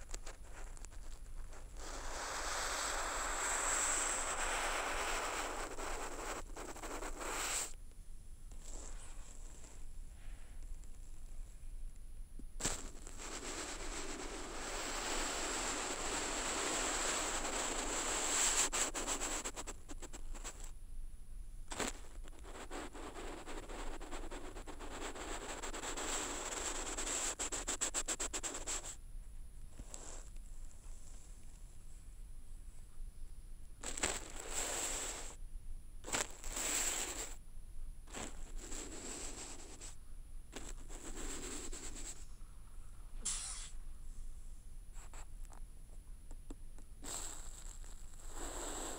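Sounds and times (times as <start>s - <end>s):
brush scratching on paper: 0.0s - 7.8s, 16.0s - 20.7s, 21.7s - 29.0s, 38.2s - 39.9s, 40.6s - 42.2s.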